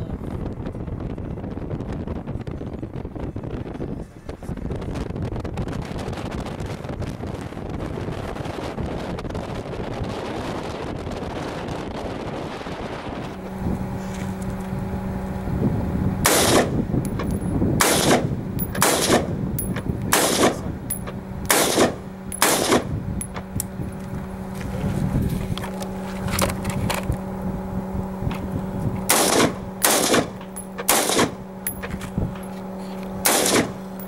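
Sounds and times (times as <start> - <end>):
wind on microphone: 0.0 - 30.5, 31.1 - 33.8
rifle shots: 16.2 - 16.8, 17.8 - 19.3, 20.1 - 20.7, 21.5 - 22.9, 29.1 - 31.4, 33.2 - 33.8.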